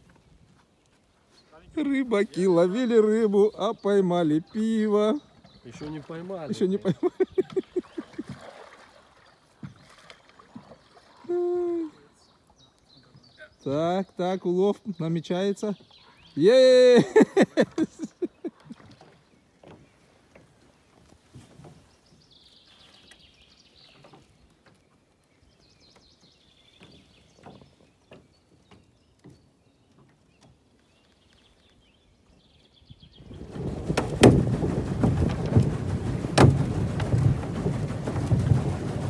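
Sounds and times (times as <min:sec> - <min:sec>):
wind buffeting microphone: 0:33.0 - 0:39.0.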